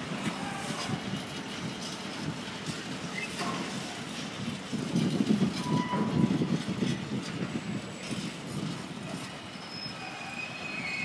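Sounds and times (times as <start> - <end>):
train wheels rumbling on rails: 0.0 - 11.0
high wheel squeal: 3.1 - 3.4, 5.5 - 6.5, 9.0 - 11.0.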